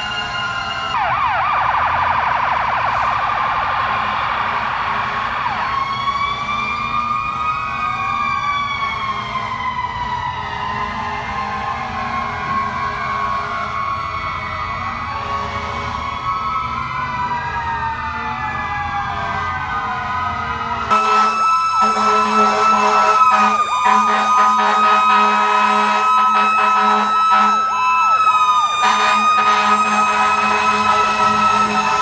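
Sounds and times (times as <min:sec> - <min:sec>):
fire truck sirens wailing: 0:00.0 - 0:32.0
steady high siren tone: 0:00.0 - 0:32.0
fast yelping siren: 0:15.9 - 0:32.0.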